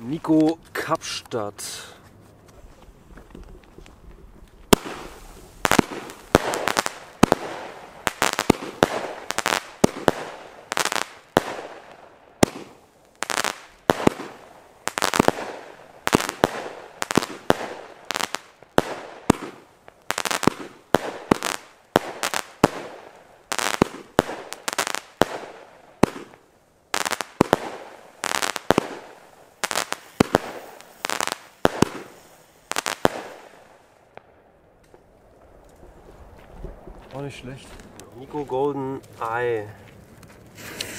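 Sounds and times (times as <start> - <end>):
firework shells bursting: 3.2 - 26.4, 27.0 - 34.3.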